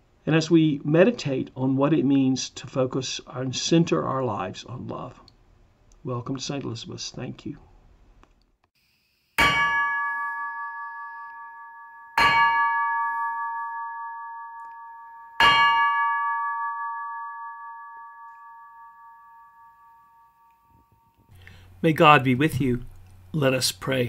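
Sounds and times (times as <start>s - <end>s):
large brass bell ringing: 9.4s - 21.1s.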